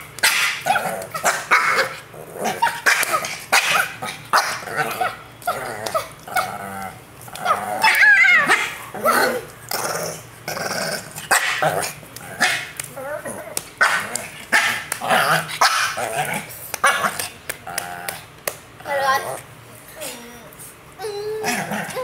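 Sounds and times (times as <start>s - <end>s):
small dog growling and barking: 0.2s - 18.2s, 21.1s - 22.0s.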